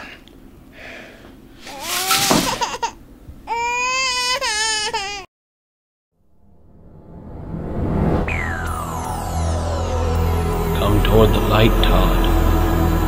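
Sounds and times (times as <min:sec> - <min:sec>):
newborn baby crying: 0:01.7 - 0:05.3.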